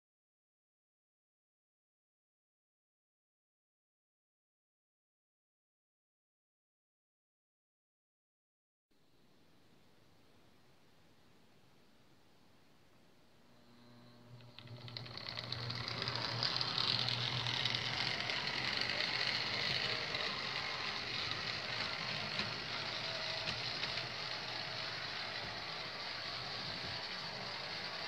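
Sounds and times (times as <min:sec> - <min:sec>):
model train motor whirring: 0:13.7 - 0:28.0.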